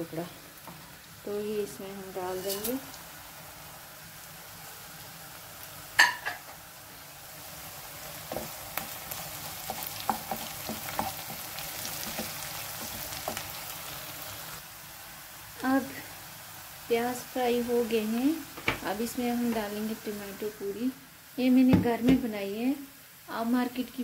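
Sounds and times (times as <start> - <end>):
onions sizzling in hot oil: 0.0 - 24.0.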